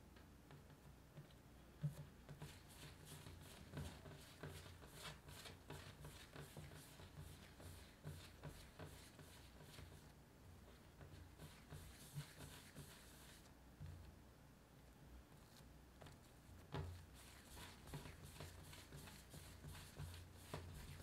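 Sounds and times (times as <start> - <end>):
dough rubbing on countertop: 1.8 - 10.1, 10.7 - 13.5, 16.6 - 21.0.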